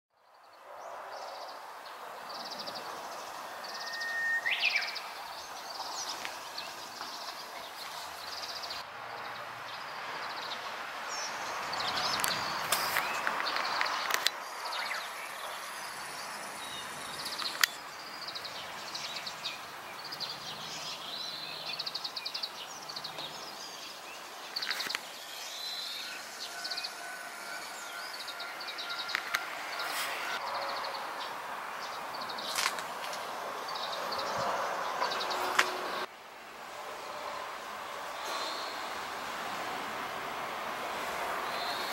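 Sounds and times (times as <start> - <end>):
small birds chirping: 0.3 - 27.0.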